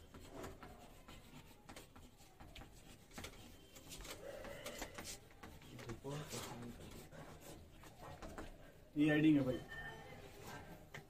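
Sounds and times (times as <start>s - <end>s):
chalk scratching on chalkboard: 0.0s - 8.6s.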